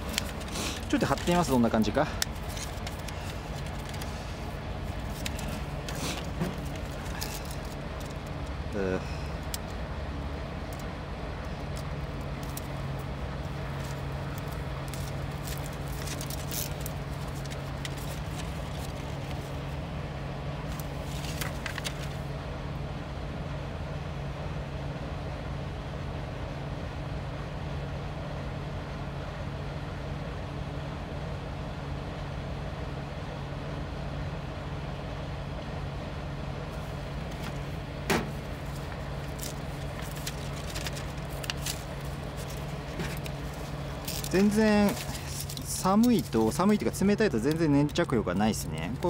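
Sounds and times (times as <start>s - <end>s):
engine idling: 0.0s - 25.0s, 27.3s - 49.0s
scratchy rustles: 2.2s - 8.2s, 13.7s - 19.7s, 38.3s - 46.4s.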